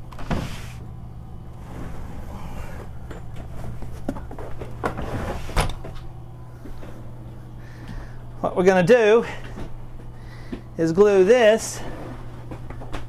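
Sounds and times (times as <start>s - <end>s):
steady low hum: 0.0s - 13.0s
carpet rustling: 1.5s - 7.1s.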